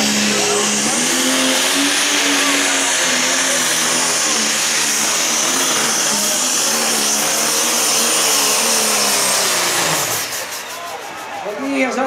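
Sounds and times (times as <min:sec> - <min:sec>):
diesel tractor engine running flat out: 0:00.0 - 0:12.0
high whistle: 0:10.3 - 0:11.7.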